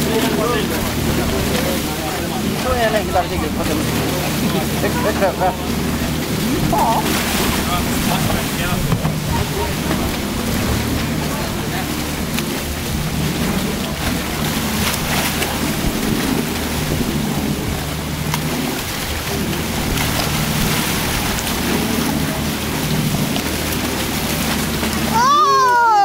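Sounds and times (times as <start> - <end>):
low machine hum: 0.0 - 26.0
water splashing: 0.0 - 26.0.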